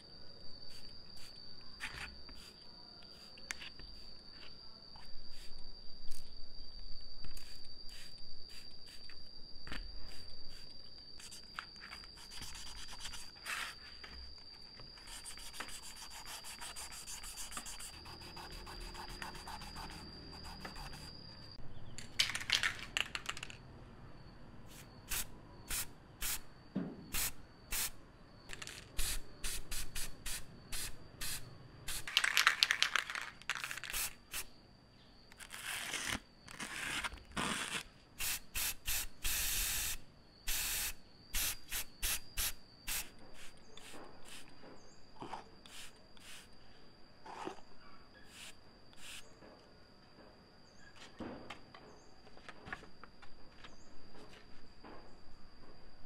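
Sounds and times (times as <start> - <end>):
spray-paint can hissing: 24.7 - 26.4, 27.1 - 28.0, 29.0 - 32.1, 33.6 - 34.4, 38.2 - 44.4, 45.7 - 46.5, 48.3 - 49.2.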